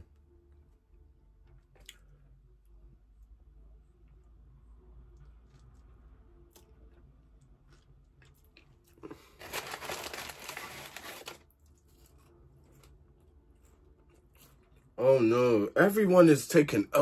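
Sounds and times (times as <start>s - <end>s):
paper napkin rustling: 9.4s - 11.4s.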